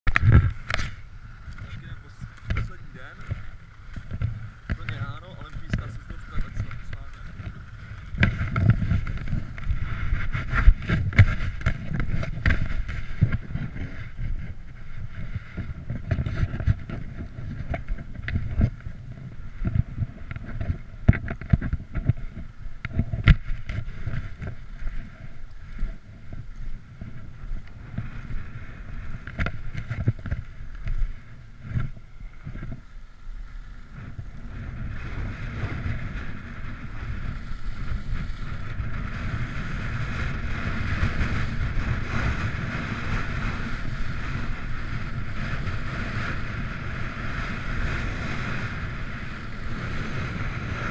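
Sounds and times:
wind on microphone: 0.0 - 50.9
skis knocking and clattering: 0.1 - 32.9, 33.9 - 50.8
ski edges hissing on snow: 30.5 - 50.9.

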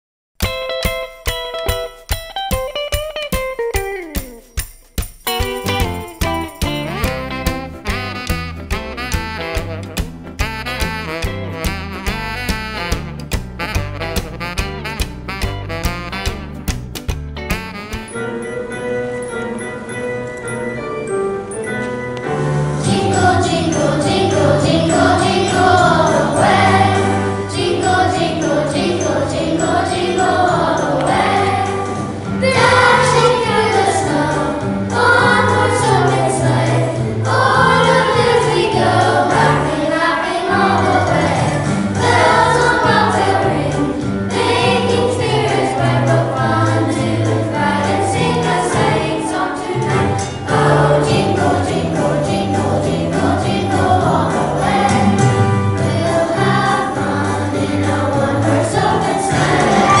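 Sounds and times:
walking bass line: 5.3 - 18.2
choir singing a holiday song: 22.3 - 60.0
choir singing: 22.8 - 60.0.

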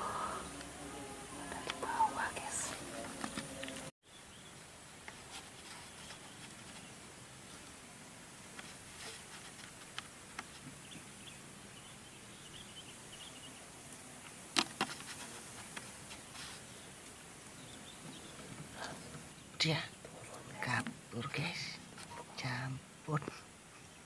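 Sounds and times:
faint insect buzzing: 0.0 - 4.5.

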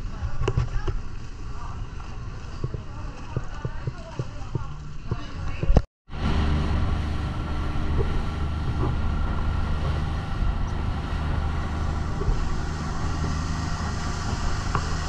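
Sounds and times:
motor engine droning: 6.1 - 15.0.

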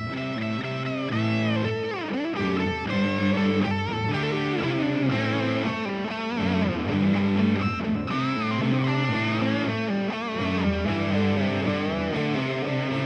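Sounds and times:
electric guitar lead: 0.0 - 13.0.

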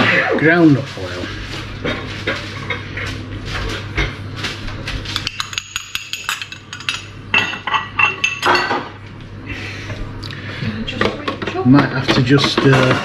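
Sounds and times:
glass pots clinking: 5.2 - 8.9.

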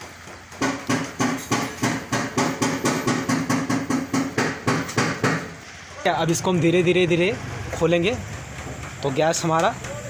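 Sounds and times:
rapid metallic knocking: 0.5 - 5.5.

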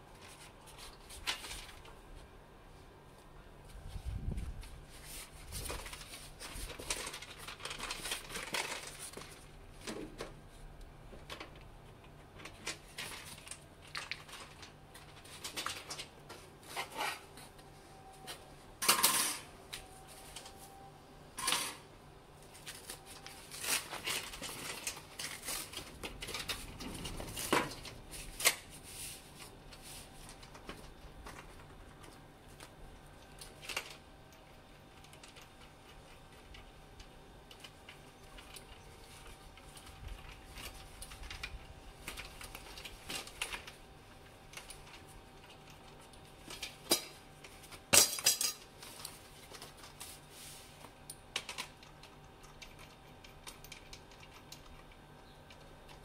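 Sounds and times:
clinks and knocks of pipe and tools: 46.5 - 49.1.

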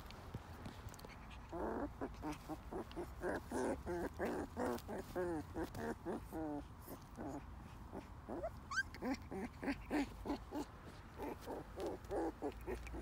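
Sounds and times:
puppies yipping and growling: 1.0 - 13.0
puppy squealing: 8.3 - 13.0.

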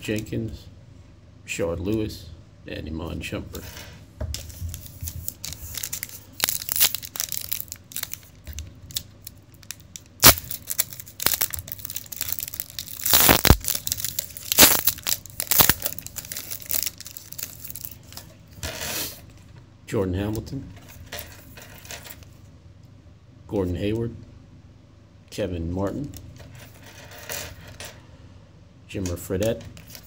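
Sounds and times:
foil wrapper crinkling and tearing: 4.5 - 18.3.

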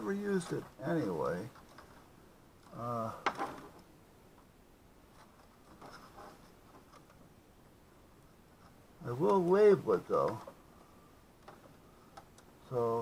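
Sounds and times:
rustling of wiring and cable ties: 0.0 - 3.9, 5.0 - 7.3
man mumbling: 2.7 - 3.3.

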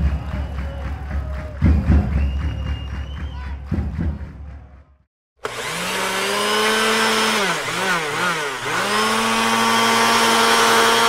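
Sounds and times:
electric hand mixer whining: 5.4 - 11.0.

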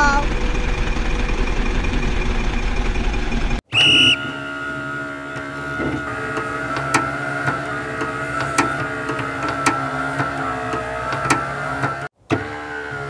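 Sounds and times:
engine-like rumble: 0.0 - 12.1
mechanical hum: 0.0 - 13.0
high whistle-like tone: 3.7 - 11.1.

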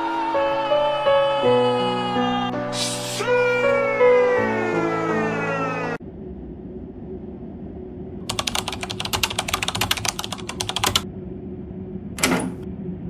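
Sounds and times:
low steady hum: 6.0 - 13.0
keyboard typing clicks: 8.3 - 11.0.

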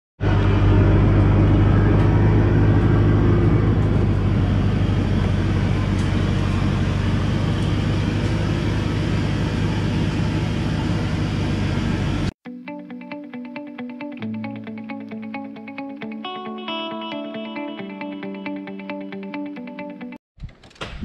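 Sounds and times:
truck diesel engine droning: 0.2 - 12.3.

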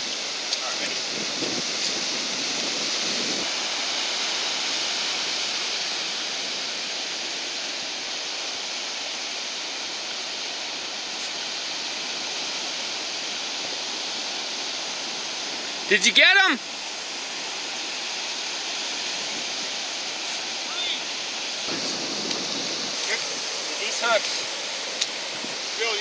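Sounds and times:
ocean surf breaking on sand: 0.0 - 26.0.

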